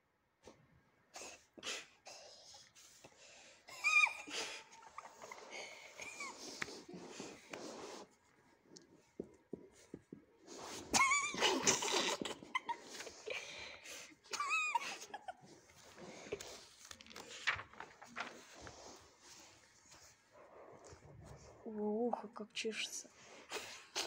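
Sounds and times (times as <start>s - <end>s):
book pages turning: 15.6s - 20.2s.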